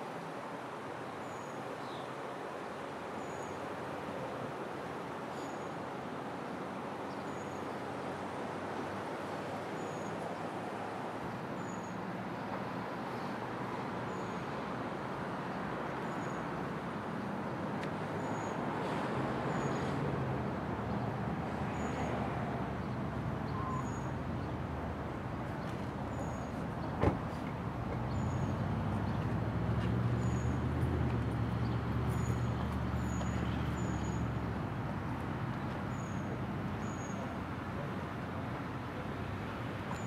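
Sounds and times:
faint high chirp: 23.5 - 24.1.

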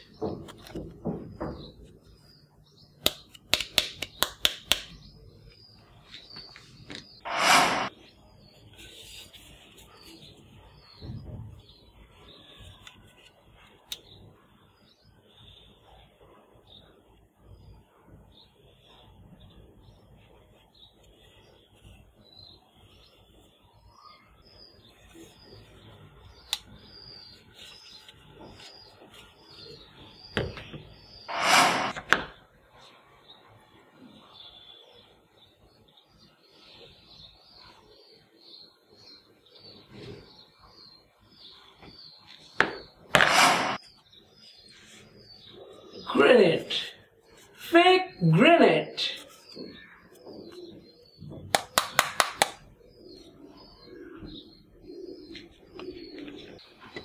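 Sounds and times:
toy scope knocking down: 43.2 - 43.8
doves cooing softly: 52.7 - 57.0.

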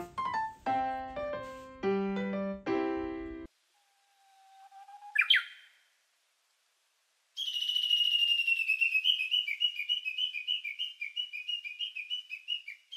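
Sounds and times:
rising whistle glide: 3.8 - 5.5
bird-like whistled warble: 4.2 - 5.8, 7.4 - 12.9.

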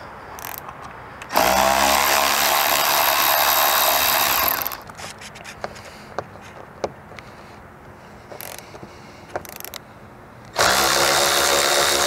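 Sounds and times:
power driver spinning: 0.4 - 5.6.

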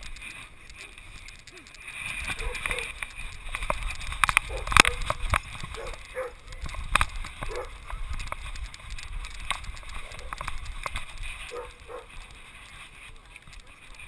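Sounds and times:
dog barking: 5.8 - 6.4, 7.5 - 7.8, 11.5 - 12.1.

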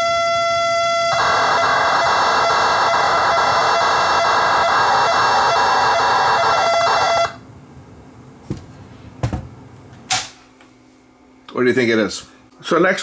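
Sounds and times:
raspy cassette data signal: 1.1 - 7.4.

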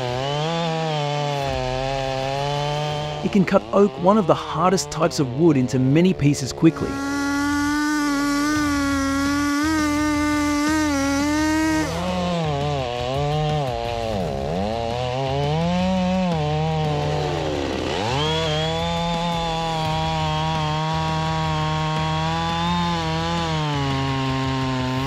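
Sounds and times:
chainsaw cutting wood: 0.0 - 25.0.

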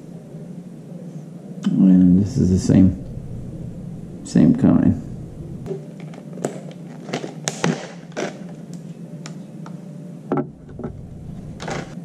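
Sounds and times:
plastic pack clicking and crinkling: 5.9 - 9.4.

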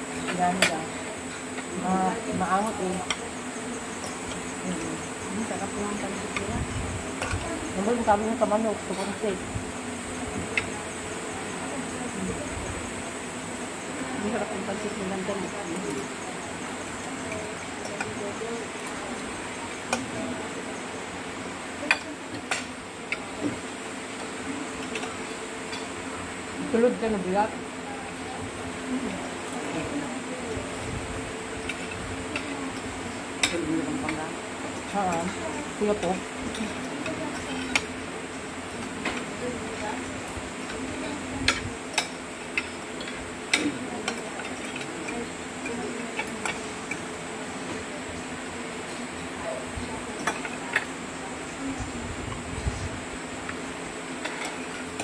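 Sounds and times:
steady low hum: 0.0 - 55.0
cutlery clinking against plates: 50.2 - 50.9.

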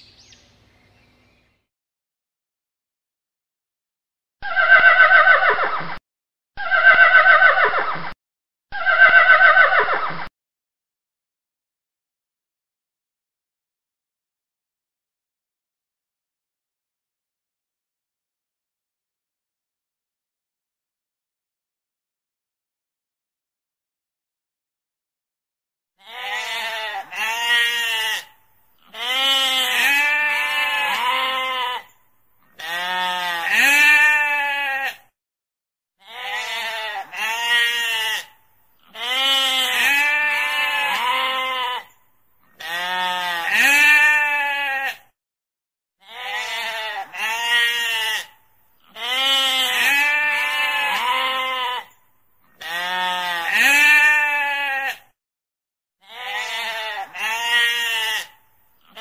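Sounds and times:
sheep bleating: 26.0 - 35.1, 36.0 - 45.1, 46.0 - 55.1, 56.0 - 59.0.

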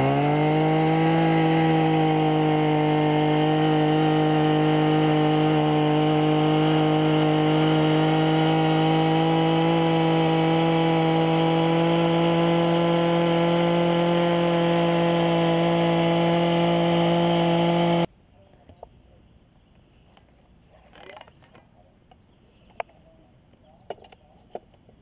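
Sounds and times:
gas drill engine boring: 0.0 - 18.1.

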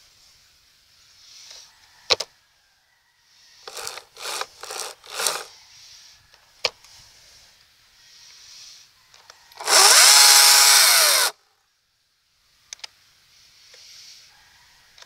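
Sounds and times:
short rasping scrapes: 3.7 - 5.5.

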